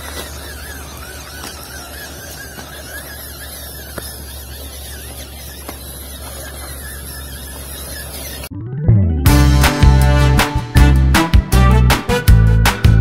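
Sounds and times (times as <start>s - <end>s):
electric motor whining: 0.0s - 8.5s.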